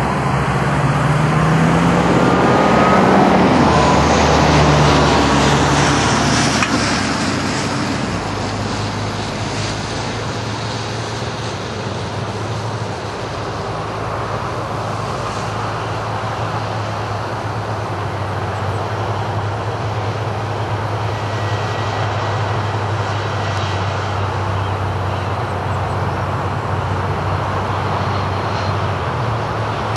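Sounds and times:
jet engine rushing noise: 0.0 - 29.9.

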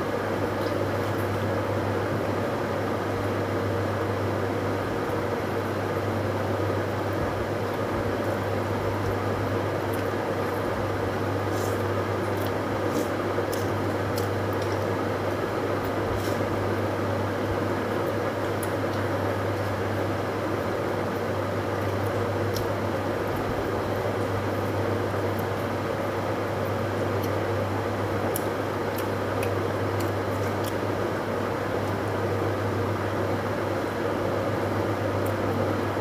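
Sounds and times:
mechanical hum with hiss: 0.0 - 36.0
faint eating clicks: 11.6 - 16.4, 17.9 - 20.1, 21.1 - 23.6, 26.6 - 31.0.

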